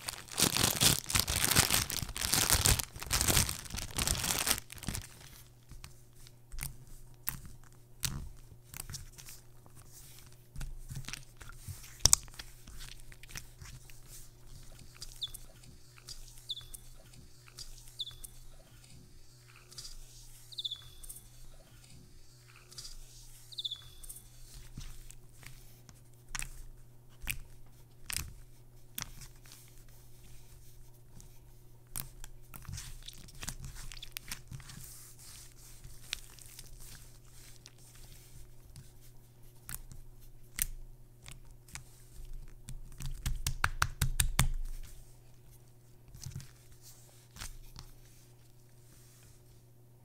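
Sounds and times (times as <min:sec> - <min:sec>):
slime kneaded by hand: 0:00.0 - 0:16.3, 0:31.9 - 0:45.1.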